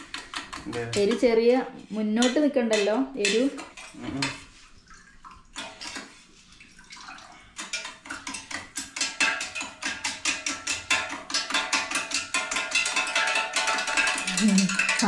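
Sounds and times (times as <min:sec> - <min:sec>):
metal spoon clinking in tumbler: 0:08.7 - 0:15.0.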